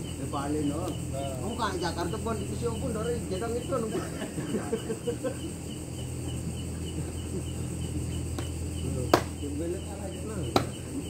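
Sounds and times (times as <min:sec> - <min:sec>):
crickets chirping: 0:00.0 - 0:11.0
low steady hum: 0:00.0 - 0:11.0
sharp knock: 0:09.1 - 0:09.4, 0:10.5 - 0:10.8.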